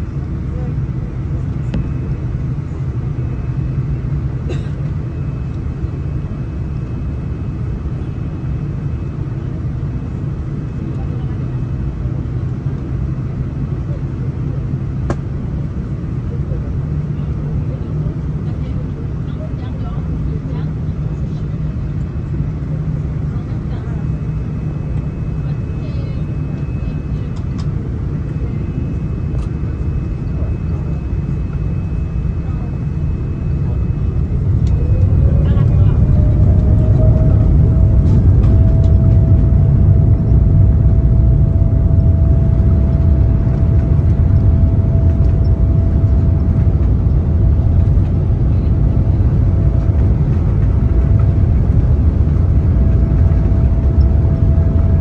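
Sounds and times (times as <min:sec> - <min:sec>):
airplane cabin engine rumble: 0:00.0 - 0:55.0
faint steady whine: 0:21.3 - 0:55.0.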